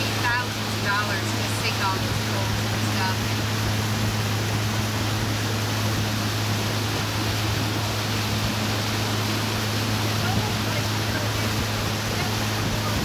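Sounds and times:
boat motor humming: 0:00.0 - 0:13.0
rushing water: 0:00.0 - 0:13.0
wind noise: 0:03.8 - 0:13.0.

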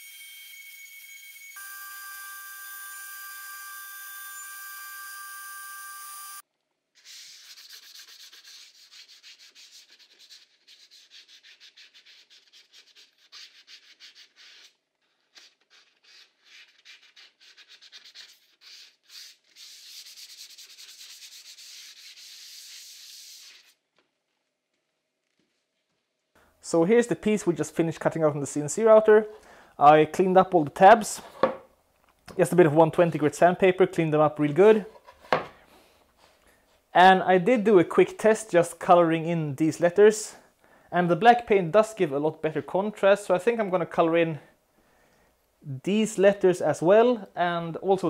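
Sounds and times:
router spindle whine: 0:00.0 - 0:06.4
sandpaper rubbing: 0:07.0 - 0:23.8.

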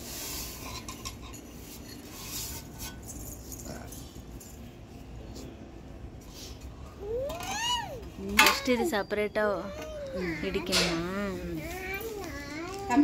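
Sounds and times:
kitchen utensils clinking: 0:08.2 - 0:12.0.

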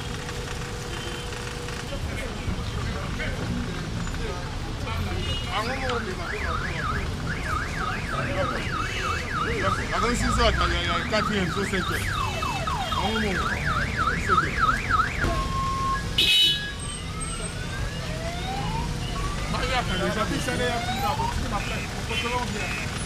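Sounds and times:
vehicle siren yelping: 0:05.9 - 0:22.0
siren steady tone: 0:06.1 - 0:21.8.

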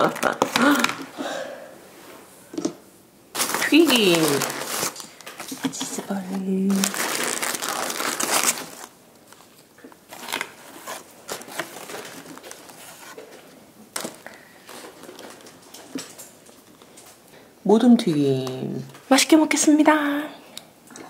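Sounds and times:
paper bag crinkling: 0:03.3 - 0:13.4, 0:14.0 - 0:16.5.

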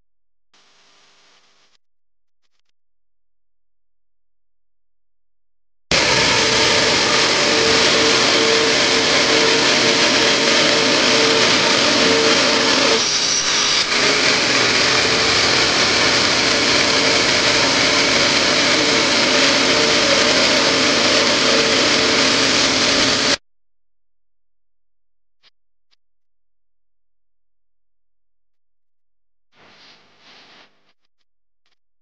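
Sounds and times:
vacuum motor running: 0:05.9 - 0:23.4.

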